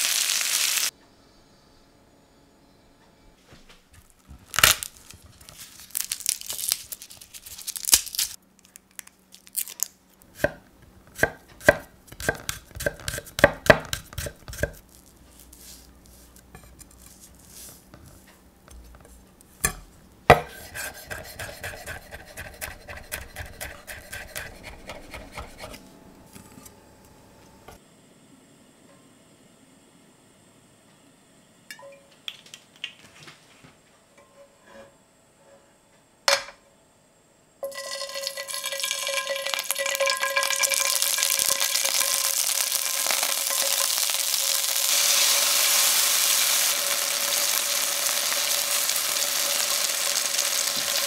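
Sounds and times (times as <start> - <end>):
knife chopping on wooden board: 10.4 - 14.8, 19.6 - 25.8
knife scraping board: 10.4 - 14.8, 15.4 - 19.2, 20.3 - 26.7.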